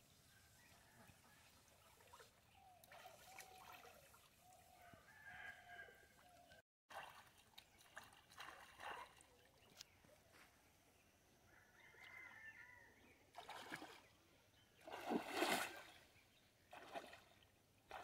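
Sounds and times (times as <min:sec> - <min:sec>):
pond water sloshing: 0:01.6 - 0:04.8, 0:06.9 - 0:10.1, 0:13.2 - 0:18.0.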